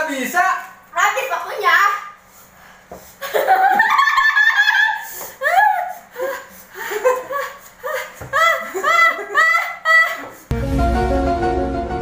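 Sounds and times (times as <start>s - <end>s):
man and woman laughing: 3.2s - 10.5s.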